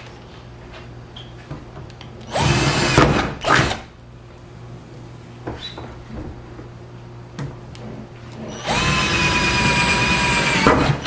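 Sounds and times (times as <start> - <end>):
cordless drill drilling metal: 2.3 - 3.8, 8.5 - 11.0.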